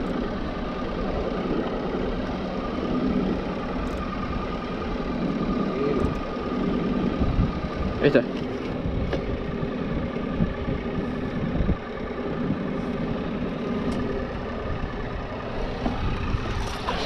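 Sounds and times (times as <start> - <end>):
boat engine idling: 0.0 - 17.0.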